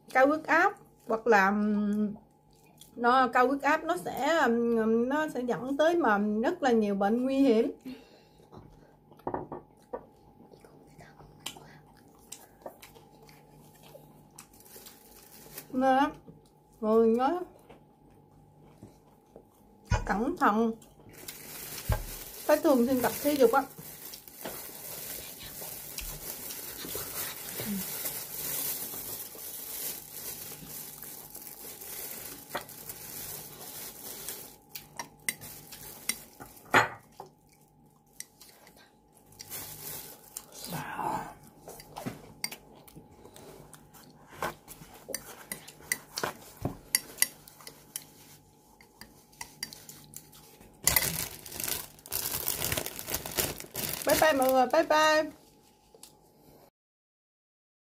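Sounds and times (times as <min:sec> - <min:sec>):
faint steady hum: 0:00.0 - 0:56.7
person chewing: 0:02.2 - 0:03.0, 0:09.0 - 0:15.2, 0:24.0 - 0:29.4, 0:30.3 - 0:36.4, 0:37.2 - 0:54.0.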